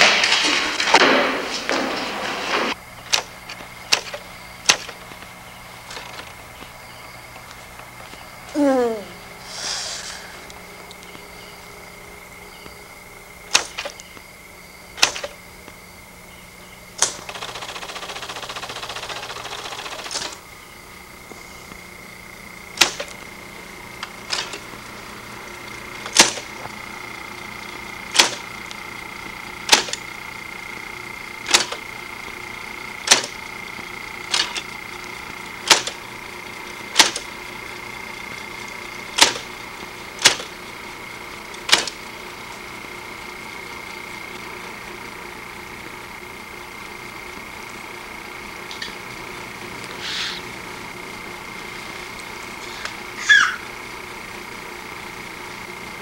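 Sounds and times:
hissing noise: 8.5s - 10.9s, 48.2s - 53.8s.

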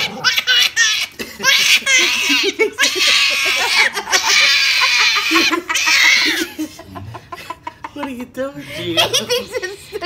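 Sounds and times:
small dogs yapping: 0.0s - 6.5s
baby laughing: 0.0s - 6.8s.

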